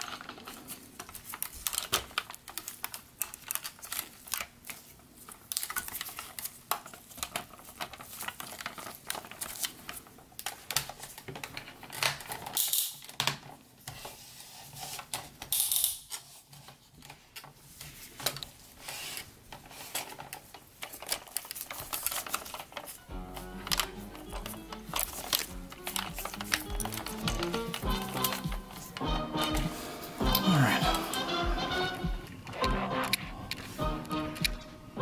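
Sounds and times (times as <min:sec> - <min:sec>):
plastic toy parts clicking: 0:00.0 - 0:13.6, 0:14.9 - 0:17.5, 0:18.2 - 0:29.5, 0:32.2 - 0:34.7
rubbing scrapes: 0:17.8 - 0:20.0.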